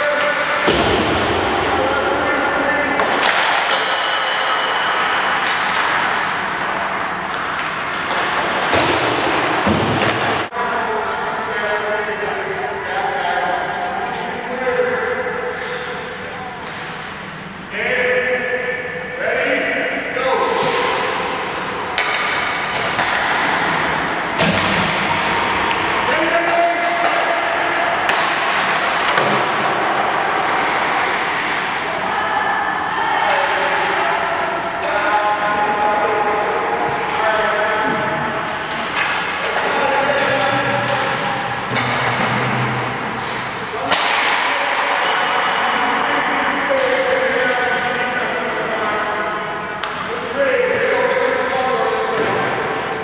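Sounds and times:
ice rink hockey practice noise: 0.0s - 53.0s
skates scraping ice: 2.9s - 10.3s, 20.5s - 24.4s, 25.6s - 32.8s
stick hitting puck clacks: 2.9s - 10.4s, 20.6s - 23.5s, 28.0s - 29.7s, 43.4s - 45.2s, 49.8s - 50.1s.

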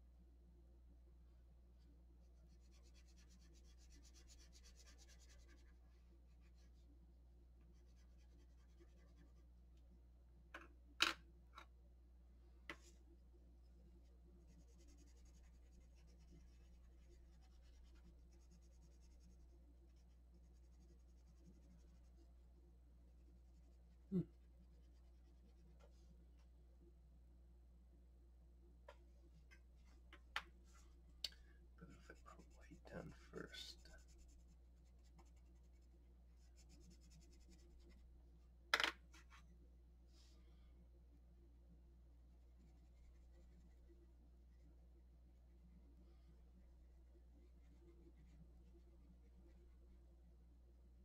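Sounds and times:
pencil scratching on paper: 2.3s - 6.8s, 7.7s - 9.5s, 14.2s - 22.3s, 31.9s - 38.0s, 42.6s - 43.9s
pencil put down with clack: 38.8s - 39.0s.

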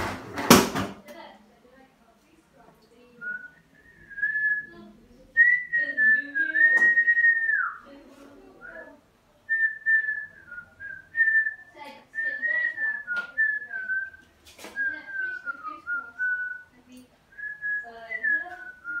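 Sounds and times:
person whistling a tune: 3.2s - 4.8s, 5.4s - 7.8s, 9.5s - 14.2s, 14.8s - 16.7s, 17.4s - 19.0s.

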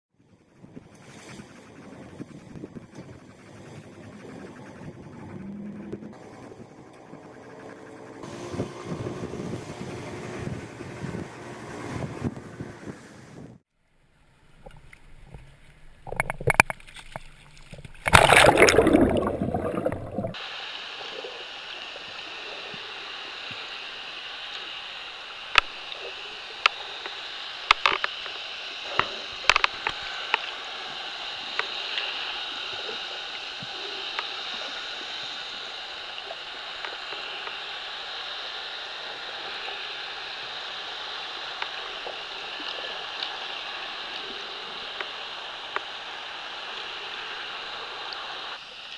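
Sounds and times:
sharp underwater clicks: 14.6s - 20.4s, 25.4s - 30.6s
water splashing: 16.0s - 37.9s
muffled underwater hiss: 18.0s - 48.9s.

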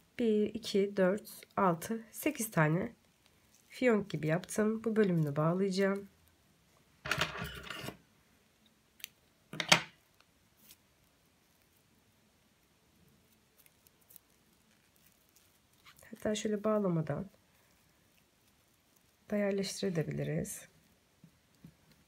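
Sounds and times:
paper cord rustling: 10.0s - 11.9s, 13.0s - 22.0s.

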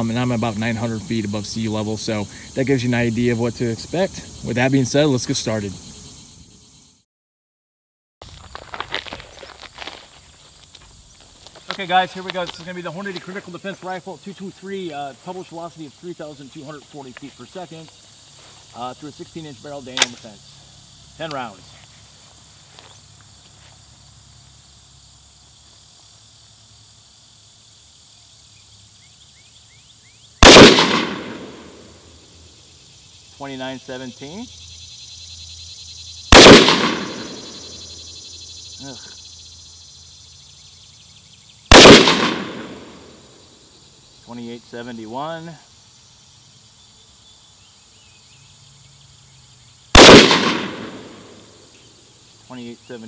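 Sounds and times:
faint insect buzz: 0.0s - 7.0s, 8.3s - 53.0s
rifle gunshot with echo: 30.4s - 31.9s, 36.3s - 37.7s, 41.7s - 43.1s, 50.0s - 51.4s.

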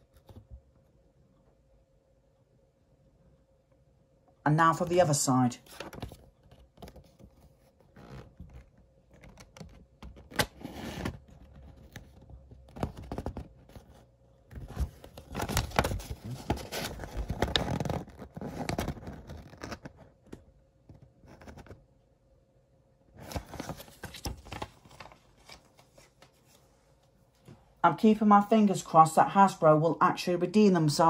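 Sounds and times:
paper rustling and crinkling: 5.7s - 20.1s, 23.2s - 26.7s.

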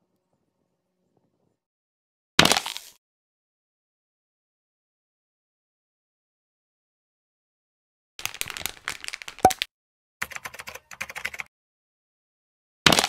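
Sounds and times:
small plastic clicks and crackles: 8.2s - 9.7s.

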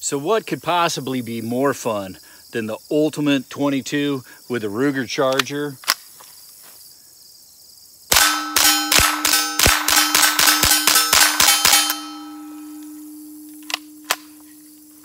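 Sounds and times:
suppressed rifle shots: 8.1s - 12.4s
steady ringing tone: 8.2s - 15.0s.

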